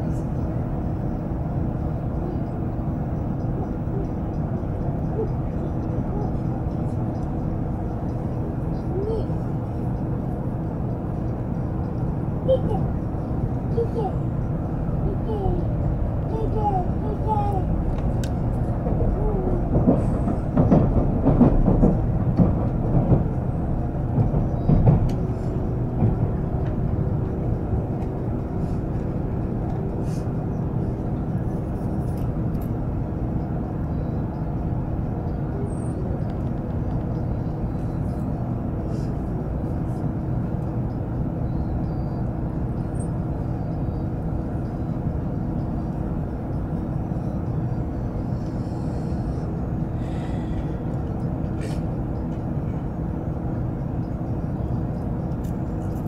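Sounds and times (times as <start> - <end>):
train cabin low rumble: 0.0 - 56.0.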